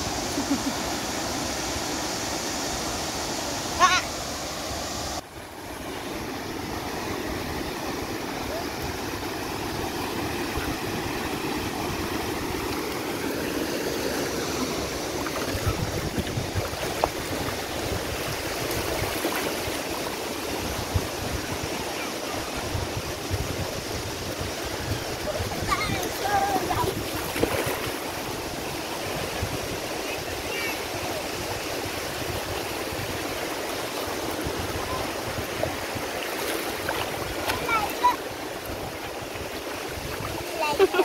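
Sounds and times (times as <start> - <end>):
small waves washing on shore: 0.0 - 41.0
wind rumbling on microphone: 14.9 - 19.7, 20.5 - 30.6, 38.4 - 40.6.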